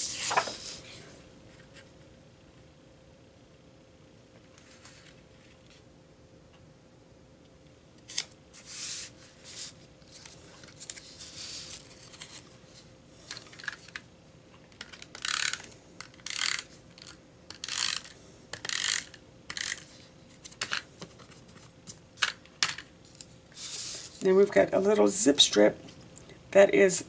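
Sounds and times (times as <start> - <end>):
paper rustling and sliding: 0.0 - 1.0, 4.6 - 5.8, 8.1 - 13.9, 23.6 - 24.2.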